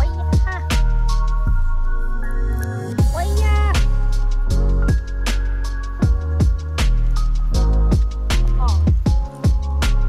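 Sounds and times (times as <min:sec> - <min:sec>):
background music with heavy bass: 0:00.0 - 0:10.0
drum hits: 0:06.0 - 0:07.1, 0:07.8 - 0:10.0.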